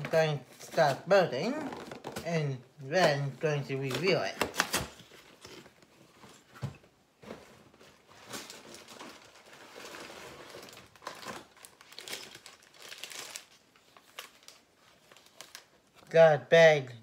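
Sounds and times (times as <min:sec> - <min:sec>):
packaging rustling and crinkling: 0:03.8 - 0:16.0.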